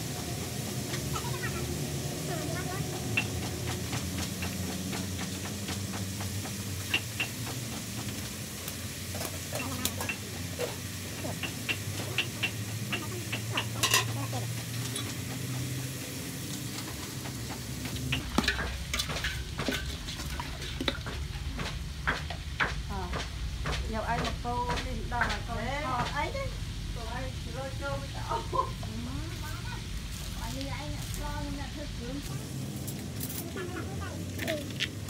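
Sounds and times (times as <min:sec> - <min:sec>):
meat sizzling in a pot: 0:00.0 - 0:35.0
stirring knocks and scrapes: 0:02.6 - 0:08.4, 0:09.0 - 0:26.4.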